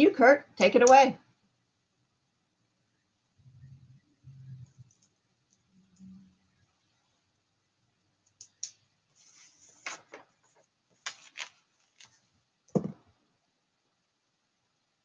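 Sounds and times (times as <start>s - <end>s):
faint clicks and scratchy taps: 4.5s - 6.1s.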